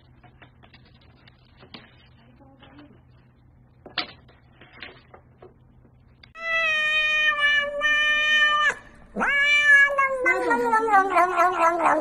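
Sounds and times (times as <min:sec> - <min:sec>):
cat meowing: 0:06.4 - 0:12.0.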